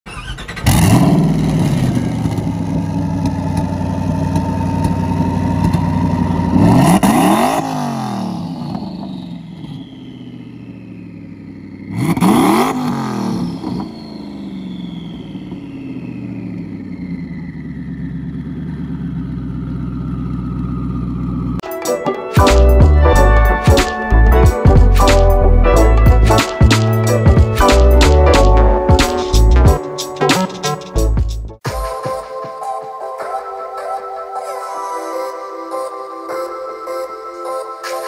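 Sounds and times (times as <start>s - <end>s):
car engine idling and revving: 0.1s - 21.6s, 22.5s - 29.8s.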